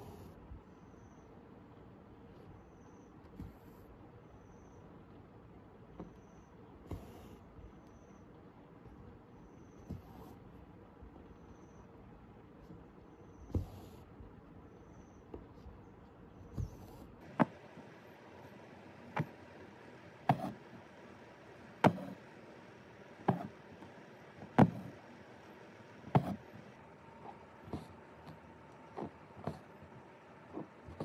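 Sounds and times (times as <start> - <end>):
needle tapping through fabric: 12.6 - 14.0, 16.4 - 31.0.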